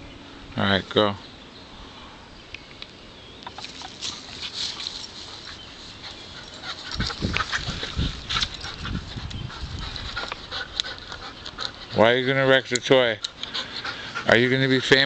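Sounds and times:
dog panting: 3.6 - 15.0
dull low thumps and rumbles: 6.9 - 10.4.

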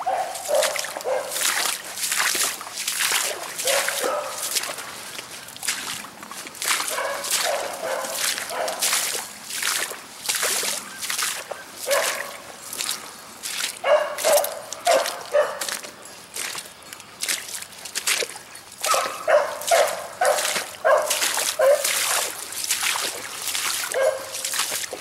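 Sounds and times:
hound baying: 0.0 - 1.4, 3.6 - 4.5, 6.9 - 8.8, 11.9 - 12.4, 13.8 - 15.7, 18.8 - 21.9, 24.0 - 24.5
boots squelching through water and mud: 0.0 - 25.0.

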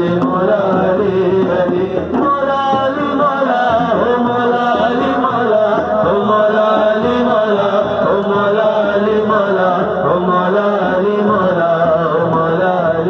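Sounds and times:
frame drum beating: 0.0 - 13.0
man singing into a microphone: 0.0 - 13.0.

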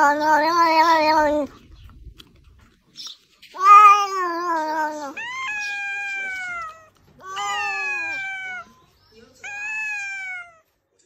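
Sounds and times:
cat meowing: 0.0 - 1.6, 3.5 - 10.7.

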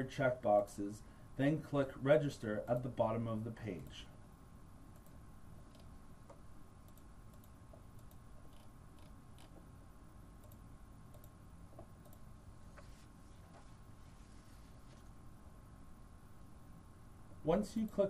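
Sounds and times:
computer mouse clicks: 4.9 - 9.6, 10.4 - 12.3.

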